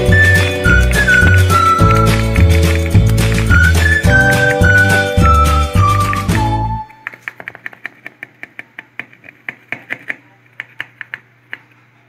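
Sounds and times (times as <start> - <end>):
music track: 0.0 - 7.0.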